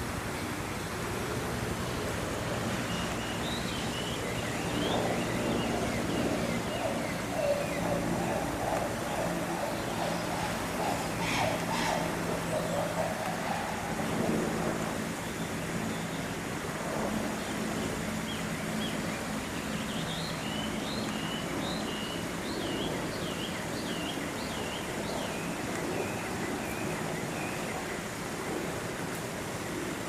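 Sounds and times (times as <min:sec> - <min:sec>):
low hum: 0:00.0 - 0:15.2
steady rushing background: 0:00.0 - 0:21.8
bird calling high notes: 0:05.7 - 0:14.0.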